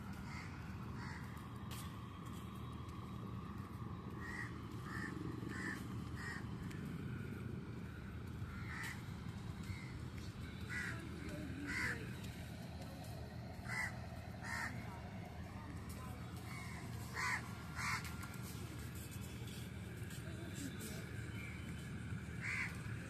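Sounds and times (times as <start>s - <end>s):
low background noise: 0.0s - 23.0s
crows cawing: 0.2s - 1.4s, 4.2s - 6.8s, 8.5s - 10.0s, 10.7s - 11.0s, 11.6s - 12.0s, 13.6s - 14.9s, 16.5s - 18.3s, 22.4s - 23.0s.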